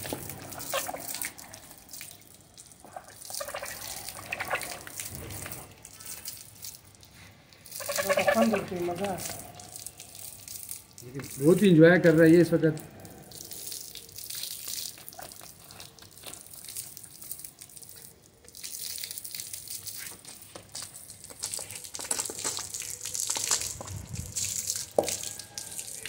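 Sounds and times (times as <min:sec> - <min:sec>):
water spraying and splashing: 0:00.0 - 0:26.0.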